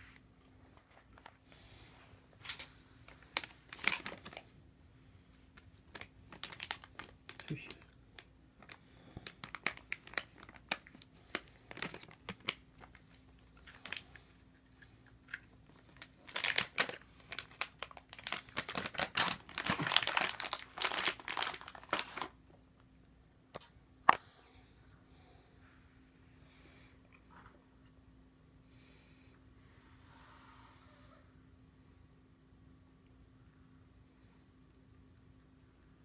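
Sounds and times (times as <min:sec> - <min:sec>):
plastic packaging crinkling: 0:02.4 - 0:04.5, 0:05.5 - 0:22.4.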